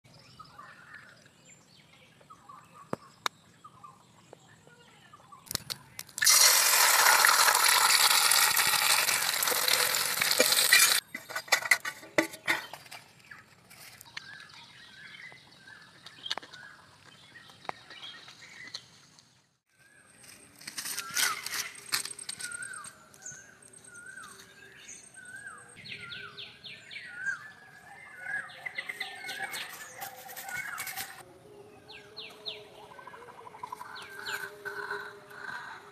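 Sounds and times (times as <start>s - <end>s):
eggs sizzling in hot oil: 6.2s - 11.0s.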